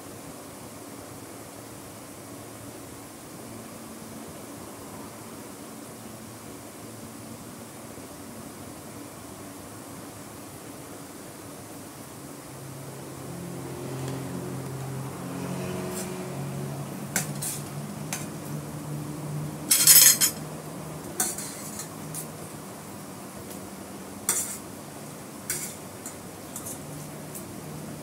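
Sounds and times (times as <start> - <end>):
cutlery clinking on glass plate: 19.7 - 20.4, 21.2 - 22.3, 24.3 - 24.6, 25.5 - 26.8.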